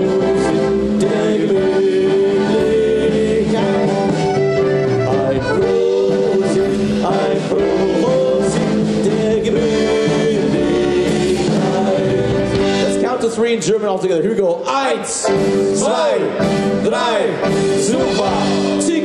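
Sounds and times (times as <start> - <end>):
accordions playing a lively tune: 0.0 - 13.2
keyboard accompaniment with bass: 0.0 - 19.0.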